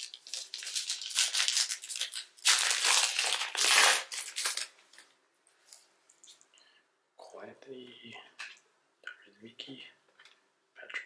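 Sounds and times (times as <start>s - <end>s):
plastic wrapper crinkling: 0.0s - 6.4s.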